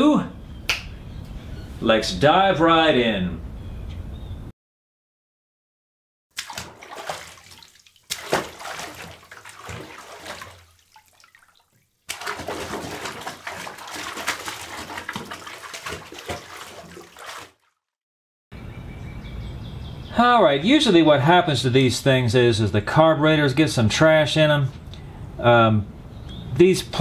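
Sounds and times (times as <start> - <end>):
water splashing and sloshing: 6.3 - 17.9.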